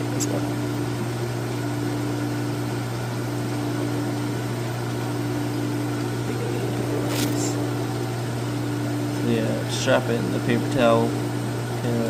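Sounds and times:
machine humming: 0.0s - 12.0s.

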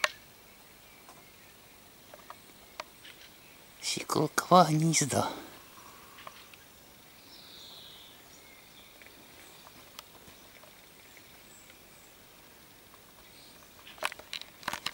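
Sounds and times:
twigs brushing against camera: 12.9s - 14.9s.

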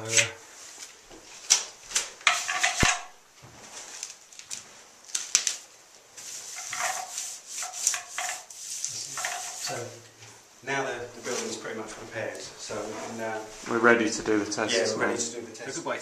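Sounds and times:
sharp knocks and clatters: 2.2s - 3.2s
rubbing and scraping: 2.2s - 4.0s, 6.2s - 9.9s.

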